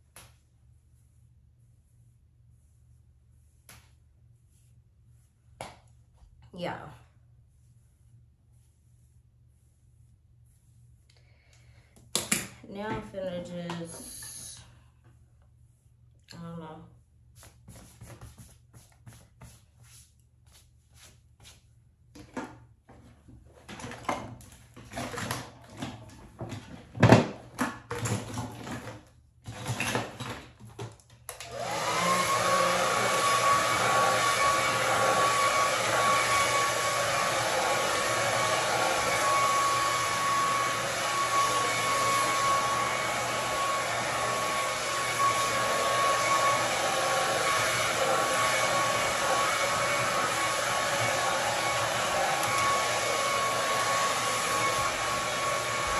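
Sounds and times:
hair dryer running: 31.3s - 55.9s.

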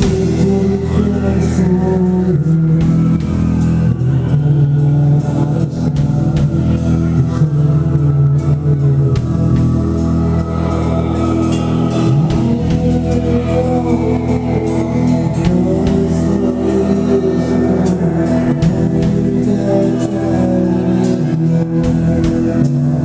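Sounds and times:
live rock band playing: 0.0s - 23.0s
person singing: 0.0s - 23.0s.

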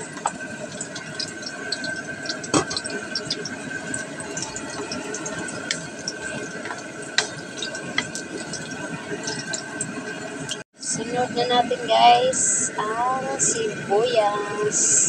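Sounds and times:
garlic sizzling in oil: 0.0s - 10.6s
oil popping and crackling: 0.0s - 10.6s.

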